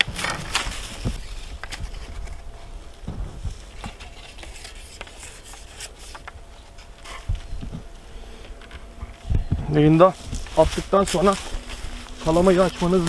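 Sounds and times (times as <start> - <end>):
low rumble: 6.3 - 13.0.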